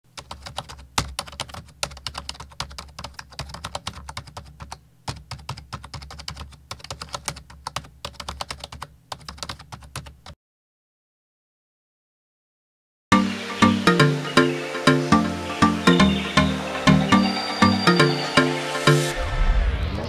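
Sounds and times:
fast keyboard typing clicks: 0.1 - 10.4.

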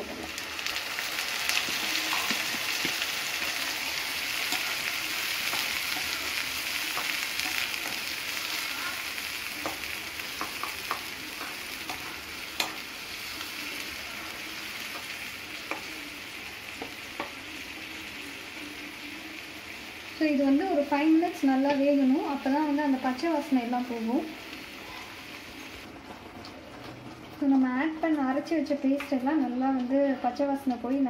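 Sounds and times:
paste sizzling in hot oil: 0.3 - 20.3.

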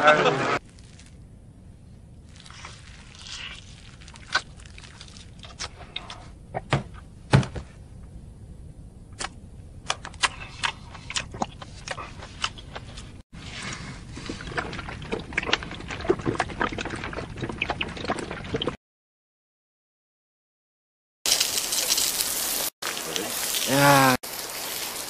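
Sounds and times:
man chewing egg: 2.3 - 6.3, 10.2 - 13.1, 13.9 - 18.8.

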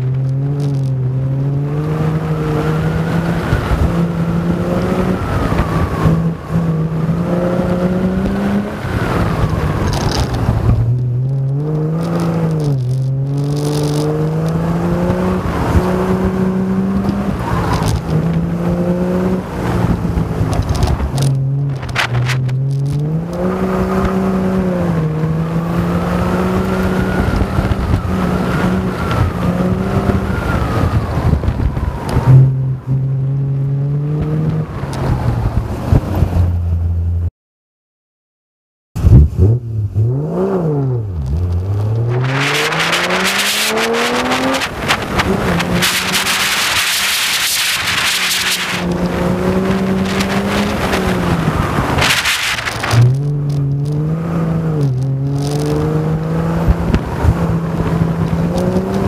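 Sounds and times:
race car engine revving: 39.0 - 59.0.

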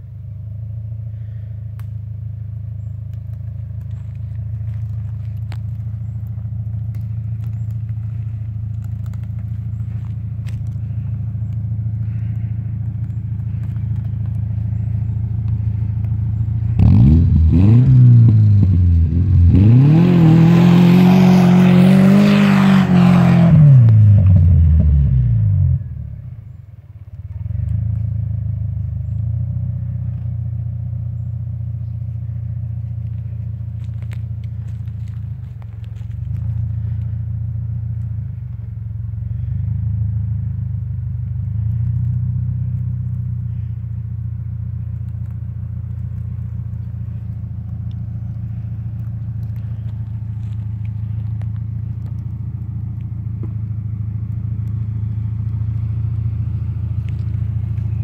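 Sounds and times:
car engine revving: 2.4 - 26.0.

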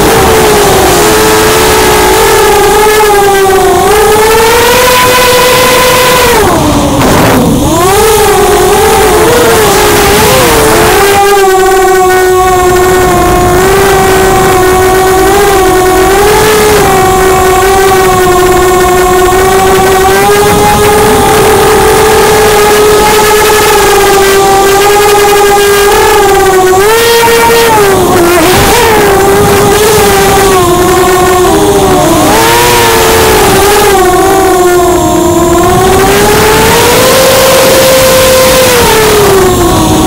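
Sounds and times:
drone motors and propellers whining: 0.0 - 40.0.

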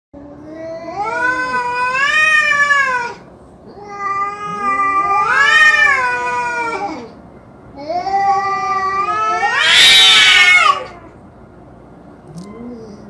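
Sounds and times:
cats yowling: 0.4 - 7.2, 7.8 - 11.2.

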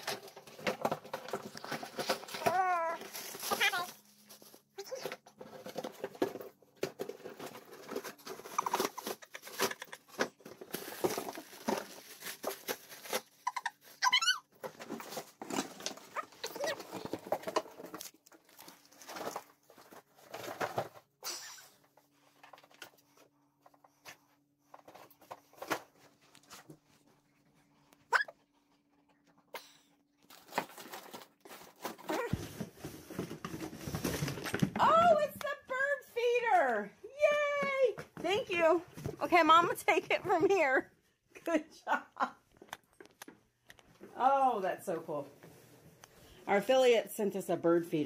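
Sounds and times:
dog rummaging in cardboard box: 0.0 - 13.9, 30.3 - 35.2.

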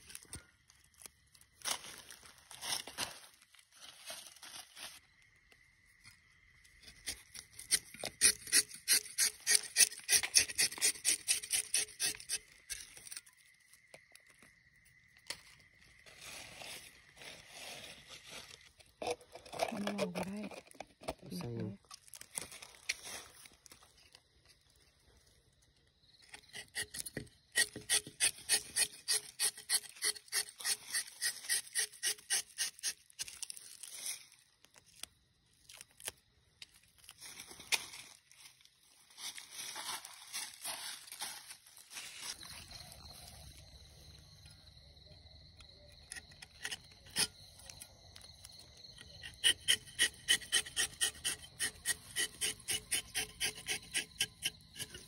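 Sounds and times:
knife scraping tree bark: 6.9 - 13.4, 26.3 - 33.8, 46.1 - 47.8, 49.0 - 55.0.

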